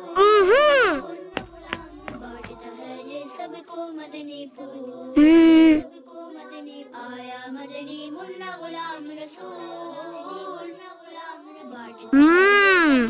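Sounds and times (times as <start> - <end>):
voices singing chant-like melody: 0.0 - 13.0
loud pitched vocal sound: 12.2 - 13.0.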